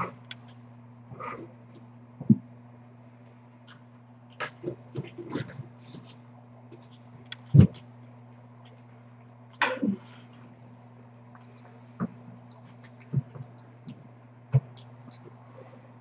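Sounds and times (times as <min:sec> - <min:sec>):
steady low hum: 0:00.0 - 0:16.0
cat chewing and licking: 0:10.3 - 0:15.4.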